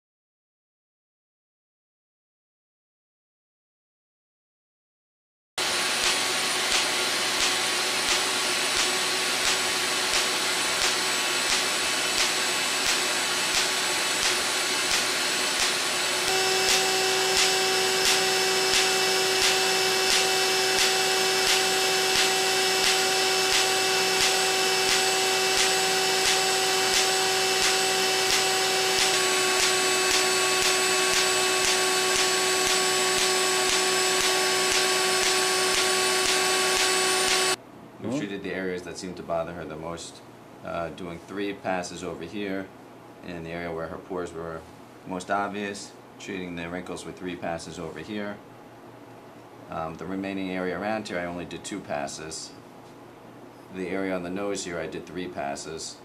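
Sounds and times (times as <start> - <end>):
suction hiss and whine: 5.6 - 38.5.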